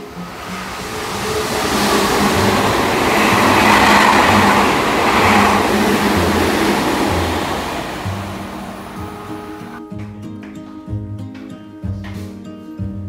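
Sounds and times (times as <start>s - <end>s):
train rushing past: 0.0s - 9.8s.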